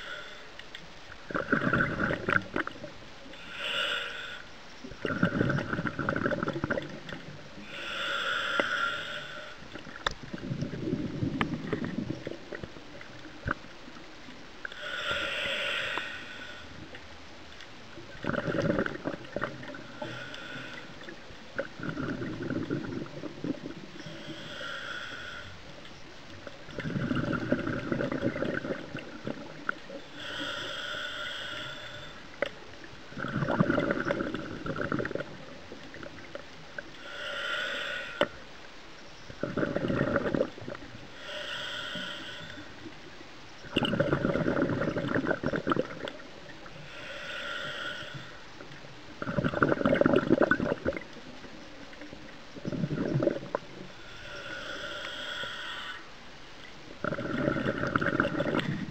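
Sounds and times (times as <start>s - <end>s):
regulator inhale hiss: 0.0s - 0.6s, 2.0s - 4.7s, 7.6s - 10.1s, 14.6s - 17.0s, 18.6s - 21.2s, 23.8s - 27.8s, 29.4s - 33.4s, 36.3s - 38.5s, 39.4s - 43.2s, 46.1s - 49.4s, 52.9s - 56.2s
exhaled bubbles rushing: 1.3s - 2.9s, 5.0s - 7.3s, 18.0s - 19.9s, 21.5s - 23.9s, 26.8s - 29.8s, 33.1s - 36.4s, 39.4s - 40.9s, 43.7s - 46.4s, 49.2s - 51.5s, 52.2s - 53.7s, 57.0s - 58.9s.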